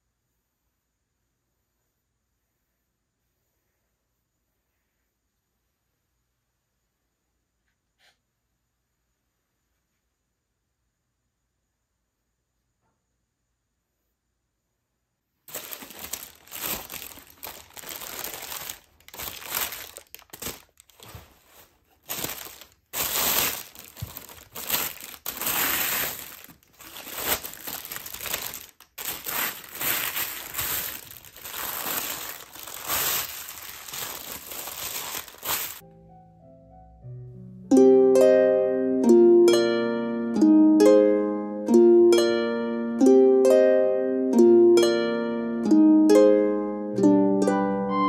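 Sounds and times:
paper crinkling: 15.5s - 35.8s.

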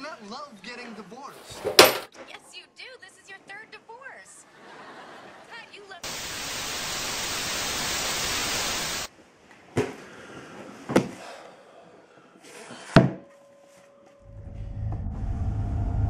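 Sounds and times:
static hiss: 6.0s - 9.1s.

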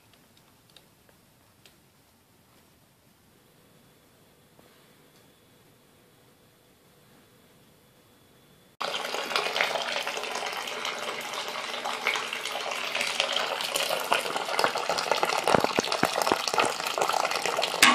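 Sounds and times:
liquid pouring into bucket: 8.8s - 17.9s.

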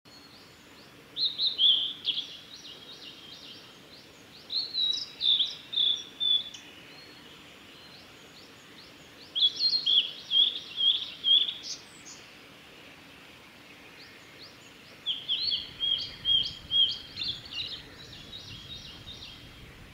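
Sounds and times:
bird whistling song: 1.2s - 3.6s, 4.5s - 7.1s, 9.3s - 12.2s, 15.0s - 19.6s.

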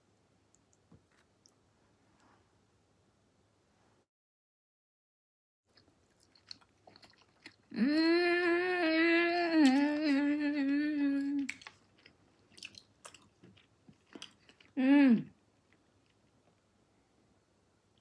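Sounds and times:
woman chewing with mouth clicks: 5.7s - 7.8s, 9.6s - 14.8s
woman humming: 7.7s - 11.5s, 14.8s - 15.4s.

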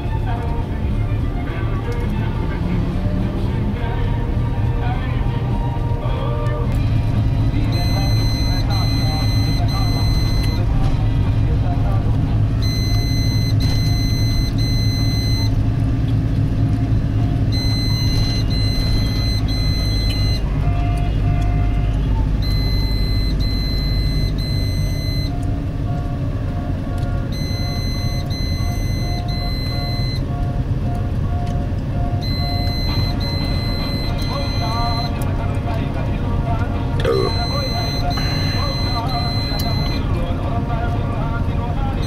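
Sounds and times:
vehicle engine and tyres: 0.0s - 42.0s
high electronic warning beeps: 7.4s - 10.7s, 12.6s - 15.6s, 17.4s - 25.5s, 27.3s - 30.3s, 32.1s - 35.3s, 37.0s - 40.2s.

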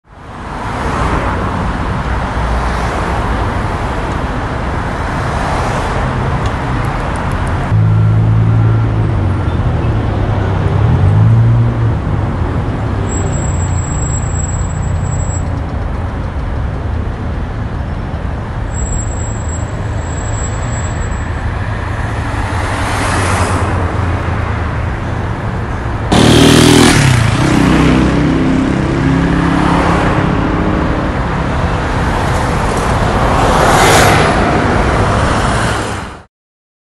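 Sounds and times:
cars passing: 0.1s - 36.3s
loud vehicle passing: 21.2s - 36.3s.

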